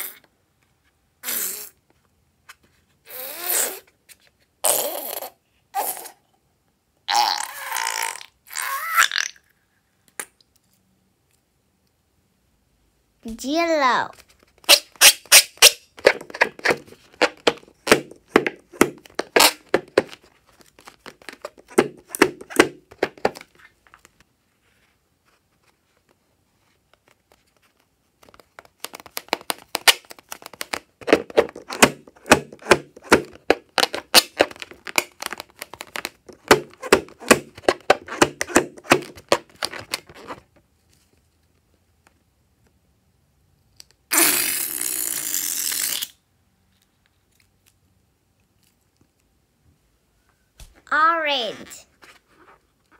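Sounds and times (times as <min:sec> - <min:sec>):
balloon squeaking under fingers: 0:01.2 - 0:01.8, 0:03.0 - 0:03.9, 0:04.6 - 0:06.2, 0:14.6 - 0:20.1, 0:31.3 - 0:40.4, 0:44.1 - 0:46.2.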